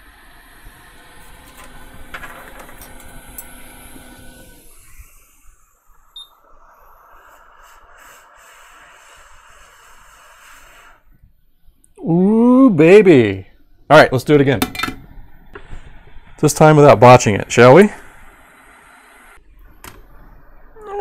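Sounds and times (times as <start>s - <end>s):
hot air blower hiss: 2.8s - 11.2s, 15.6s - 19.4s.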